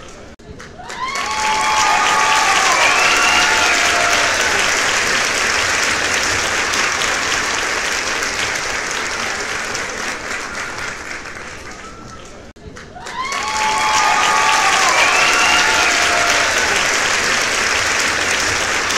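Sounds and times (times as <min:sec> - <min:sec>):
audience applauding: 0:00.0 - 0:18.9.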